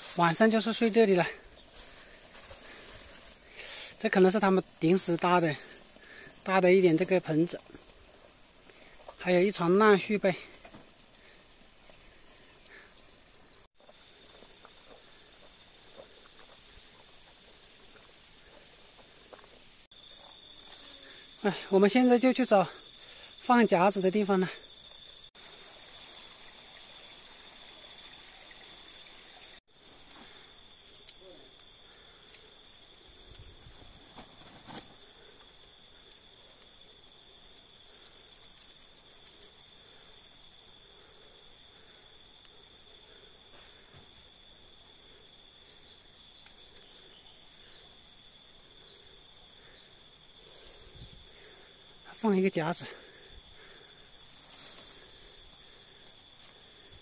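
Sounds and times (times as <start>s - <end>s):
insects trilling: 0.0s - 57.0s
faint rustles and clicks: 37.4s - 40.6s
faint ticks: 46.4s - 47.0s.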